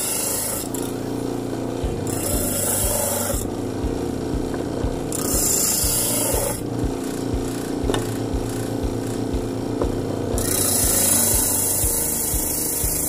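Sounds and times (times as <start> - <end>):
electric motor humming: 0.0 - 13.0
low knocking: 1.8 - 13.0
wood sanding hiss: 2.0 - 4.4, 5.0 - 9.8, 10.4 - 13.0.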